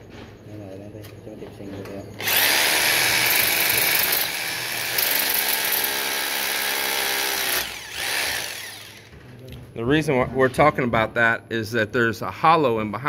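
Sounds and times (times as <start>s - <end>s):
hammer drill boring: 2.2s - 9.2s.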